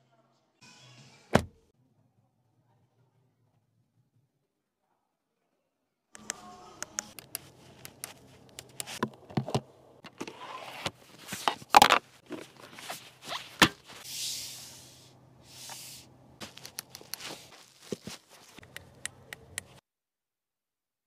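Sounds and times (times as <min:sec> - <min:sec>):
soft brushing rustles: 0:10.9 - 0:18.6
car switch clicks and taps: 0:18.6 - 0:19.8.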